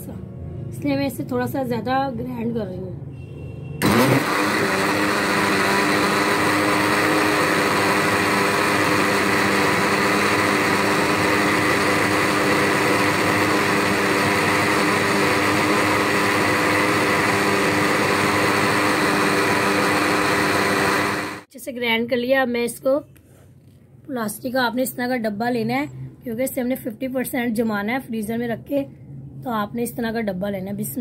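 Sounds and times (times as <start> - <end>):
electric blender running: 3.8 - 21.5.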